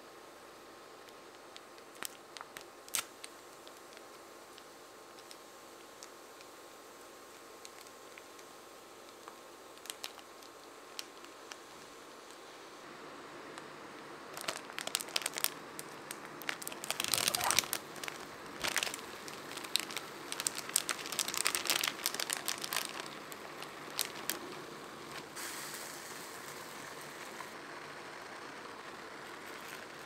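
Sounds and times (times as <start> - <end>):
soft steady hiss: 0.0 - 30.0
plastic packaging crinkling: 1.5 - 5.4, 9.1 - 12.4, 14.3 - 25.3.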